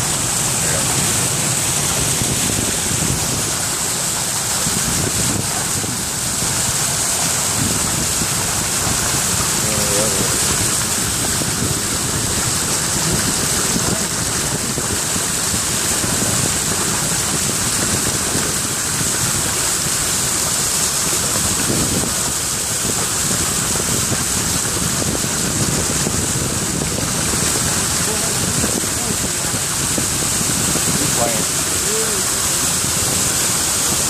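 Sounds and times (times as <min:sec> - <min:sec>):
vehicle driving through water: 0:00.0 - 0:34.0.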